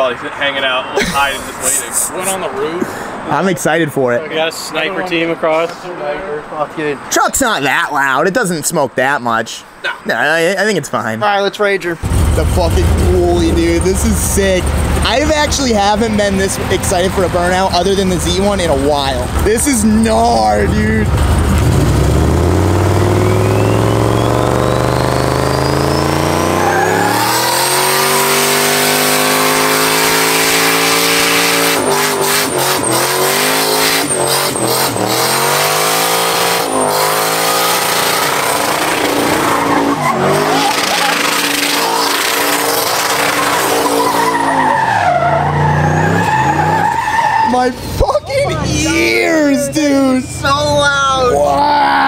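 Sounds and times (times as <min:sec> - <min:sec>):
truck engine revving: 0:12.0 - 0:51.4
tyres spinning and screeching: 0:12.0 - 0:52.0.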